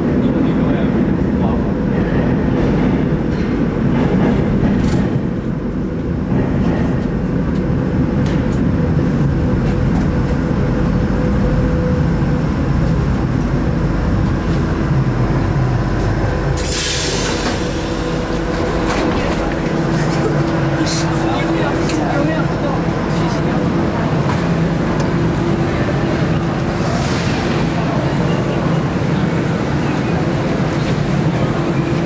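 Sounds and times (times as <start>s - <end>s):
train wheels rumbling on rails: 0.0s - 32.0s.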